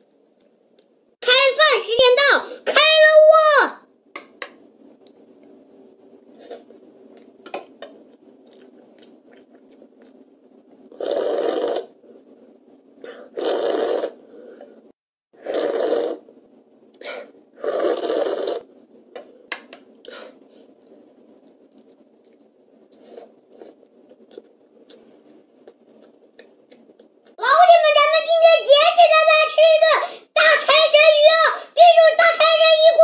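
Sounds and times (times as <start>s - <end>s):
child slurping soup: 10.9s - 12.0s, 13.1s - 14.2s, 15.4s - 16.2s, 17.1s - 18.7s.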